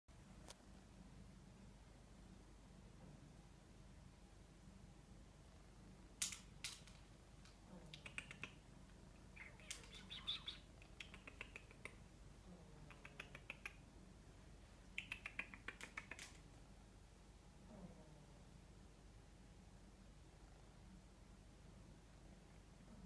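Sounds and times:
person making kissy clicking sounds: 7.8s - 8.7s, 9.4s - 12.1s, 12.8s - 13.8s, 14.8s - 16.4s.

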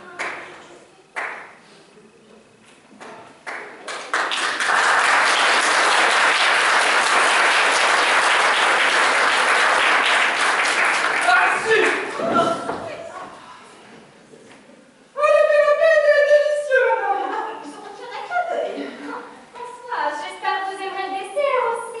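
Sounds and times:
audience applauding: 3.5s - 12.2s.

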